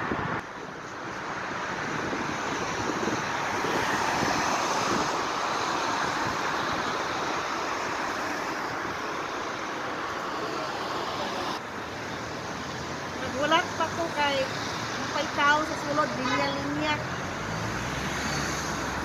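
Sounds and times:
traffic hum: 0:00.0 - 0:19.0
car driving past: 0:17.0 - 0:19.0.

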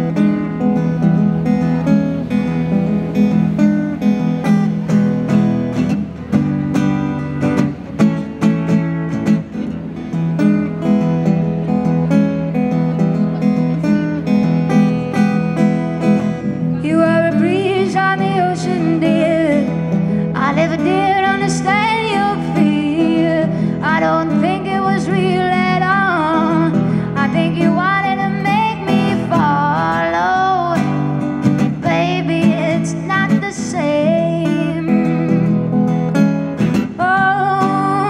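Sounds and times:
acoustic guitar: 0:00.0 - 0:38.0
woman singing blues: 0:16.6 - 0:35.8, 0:36.7 - 0:38.0.

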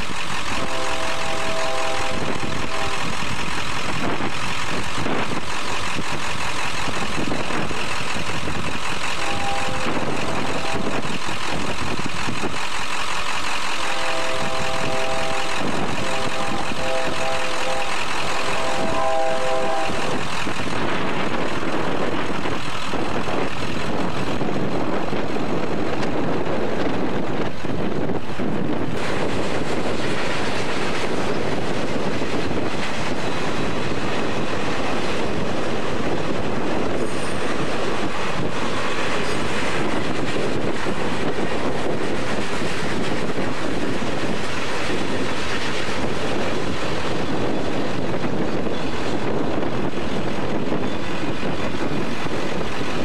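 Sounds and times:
locomotive air horn blasts: 0:00.4 - 0:04.3, 0:09.1 - 0:11.3, 0:13.8 - 0:20.5
loud rushing noise: 0:13.7 - 0:48.6.

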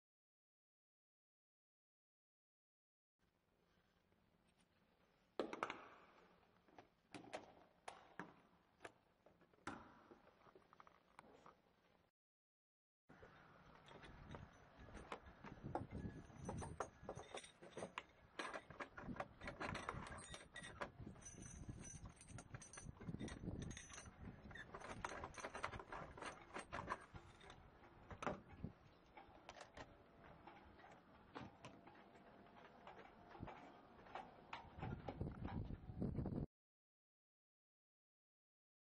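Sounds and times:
metal chain lock knocking: 0:13.9 - 0:27.6.

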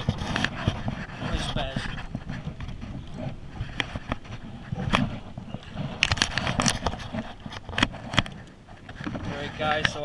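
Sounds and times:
knocks and scrapes on a kayak: 0:00.0 - 0:10.0.

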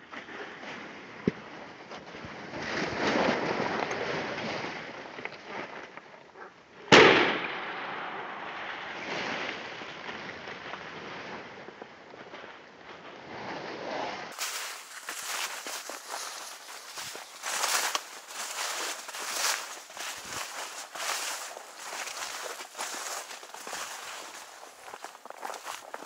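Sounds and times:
shotgun shot: 0:06.9 - 0:09.0
footsteps through leafy vegetation: 0:14.3 - 0:26.0.

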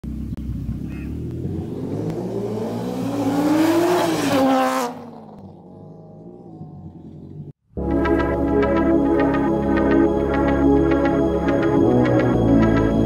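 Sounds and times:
car engine accelerating hard: 0:00.0 - 0:07.6.

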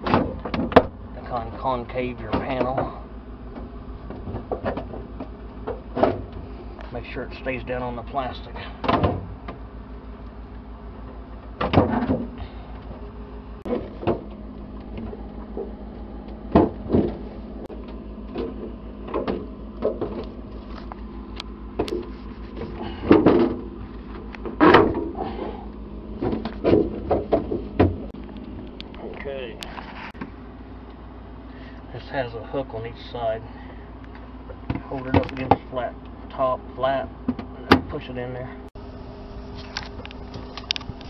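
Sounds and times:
steady low hum: 0:00.0 - 0:41.0
plastic panels knocking and clicking: 0:23.1 - 0:23.7, 0:26.2 - 0:28.1.

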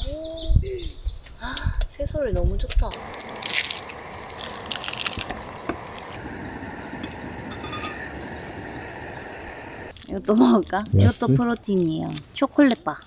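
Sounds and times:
outdoor background: 0:00.0 - 0:13.0
crinkling and rustling: 0:02.8 - 0:06.2.

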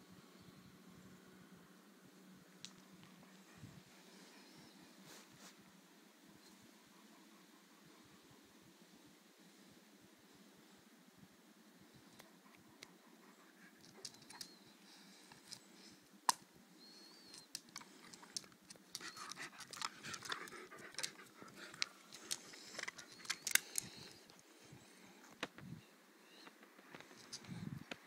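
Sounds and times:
dog panting: 0:06.5 - 0:08.6, 0:18.1 - 0:24.1
stick clicking and cracking: 0:17.3 - 0:24.4.

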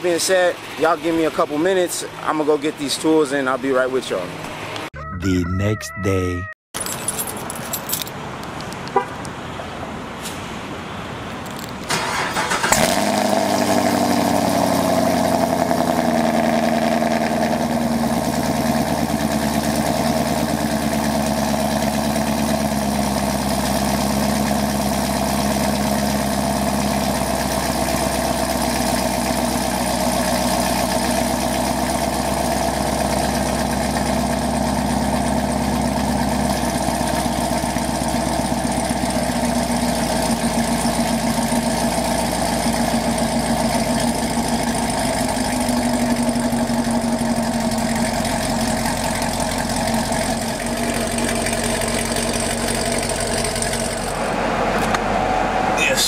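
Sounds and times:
car engine idling: 0:11.9 - 0:56.0.

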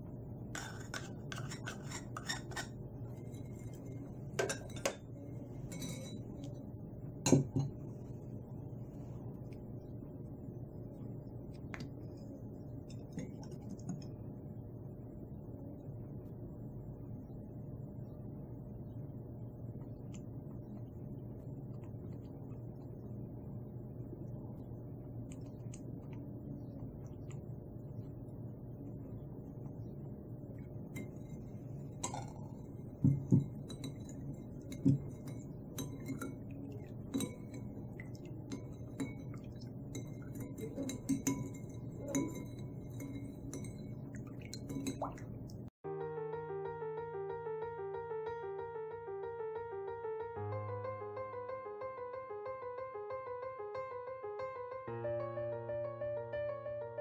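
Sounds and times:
steady low hum: 0:00.0 - 0:57.0
metal spoon clinking on bowl: 0:00.6 - 0:06.5, 0:30.9 - 0:45.2.

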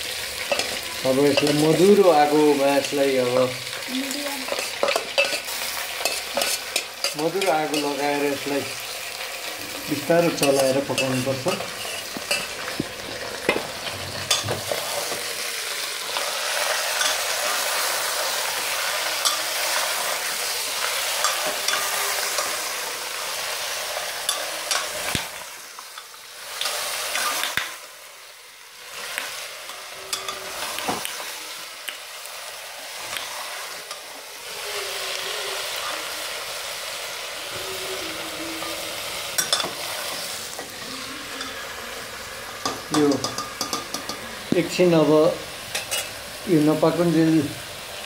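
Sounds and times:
meat sizzling in oil: 0:00.0 - 0:48.0
ladle scraping a pot: 0:10.3 - 0:15.2.

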